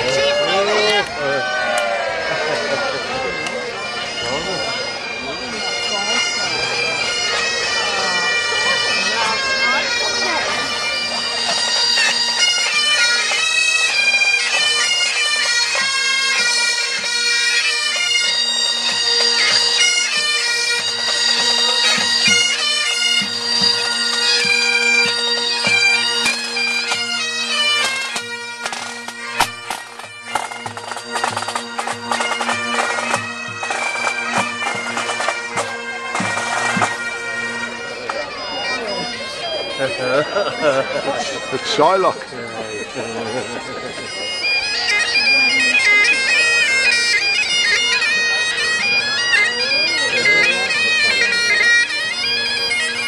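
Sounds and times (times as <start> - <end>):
bagpipes playing a tune: 0.0 - 53.0
marching drums beating: 27.8 - 37.0.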